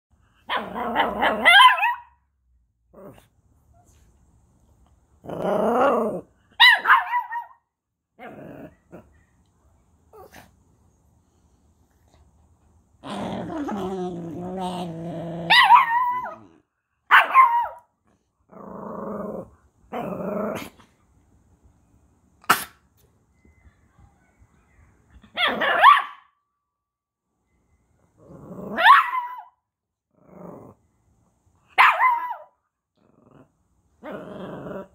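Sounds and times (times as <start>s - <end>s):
small dogs barking and yipping: 0.4s - 2.2s, 6.5s - 7.6s, 15.4s - 17.9s, 24.5s - 26.3s, 28.7s - 29.6s, 31.7s - 32.6s
dog growling low: 5.2s - 6.3s, 8.2s - 9.2s, 13.0s - 15.6s, 18.5s - 20.9s, 28.2s - 28.8s, 30.1s - 30.8s, 32.9s - 34.9s.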